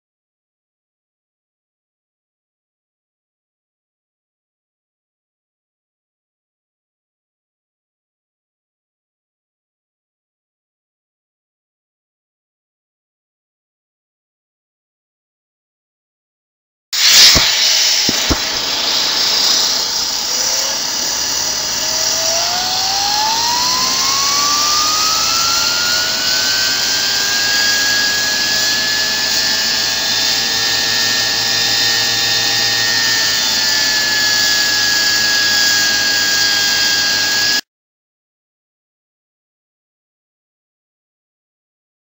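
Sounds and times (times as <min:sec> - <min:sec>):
rush of air: 0:17.0 - 0:27.8
turbine whine rising: 0:17.0 - 0:37.6.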